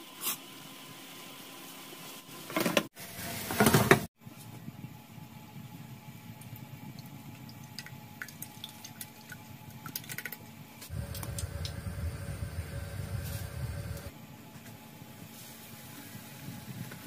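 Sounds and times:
steady low rumble: 10.9s - 14.1s
dripping ticks: 11.0s - 13.0s.

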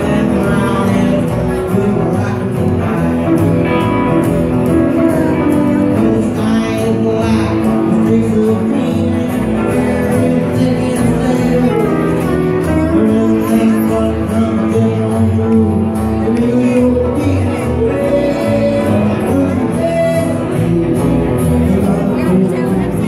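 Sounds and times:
live rockabilly band playing: 0.0s - 23.0s
person singing: 0.0s - 23.0s.

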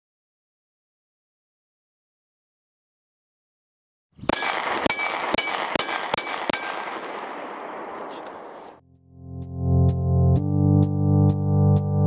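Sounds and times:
steel target plate ringing: 4.3s - 7.6s
gunshots: 4.3s - 8.8s.

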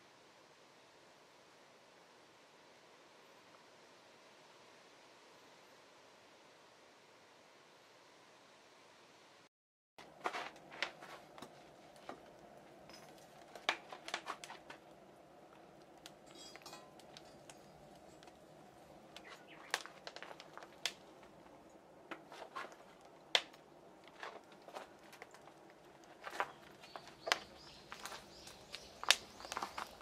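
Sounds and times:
wood fire crackling: 10.0s - 30.0s
rush of burning: 10.5s - 30.0s.

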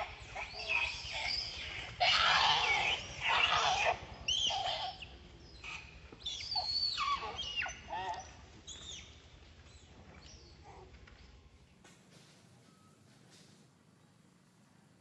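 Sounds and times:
monkeys screaming: 0.0s - 9.2s.

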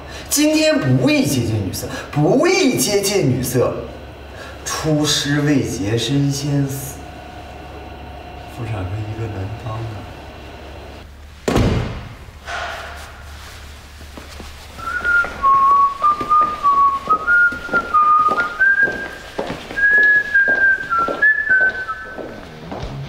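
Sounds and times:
loud thunk: 11.4s - 13.0s
man whistling a tune: 14.8s - 22.2s.

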